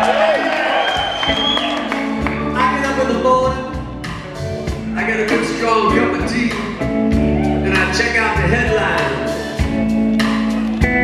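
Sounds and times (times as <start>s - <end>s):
bass guitar: 0.0s - 11.0s
drums: 0.0s - 11.0s
electric guitars: 0.0s - 11.0s
man singing: 7.6s - 9.4s.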